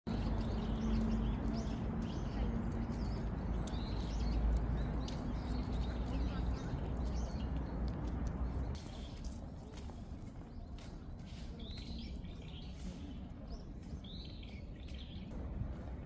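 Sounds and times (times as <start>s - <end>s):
birds chirping: 0.1s - 15.3s
steady low rumble: 15.2s - 16.0s.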